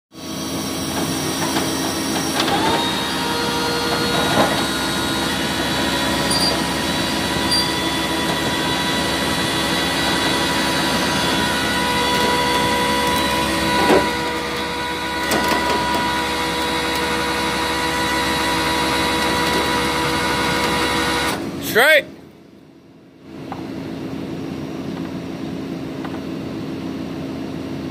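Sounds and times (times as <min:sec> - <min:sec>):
tow truck engine running: 0:00.2 - 0:21.8
hydraulic winch running: 0:00.8 - 0:21.4.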